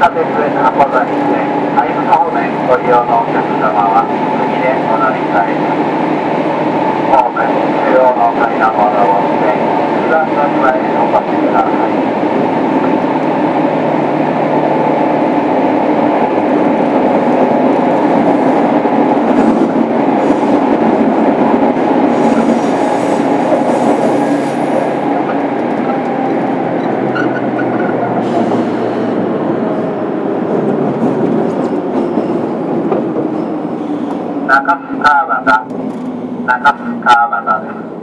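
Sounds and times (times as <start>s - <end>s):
train motors and wheels rumbling: 0.0s - 38.0s.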